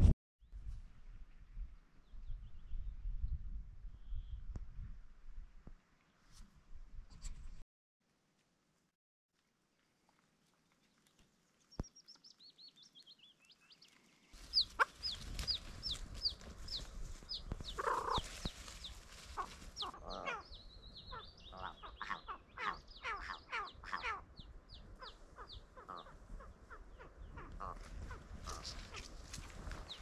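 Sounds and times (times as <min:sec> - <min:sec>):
high thin bird calls: 0:11.7 - 0:30.0
lower rough bird calls: 0:11.8 - 0:30.0.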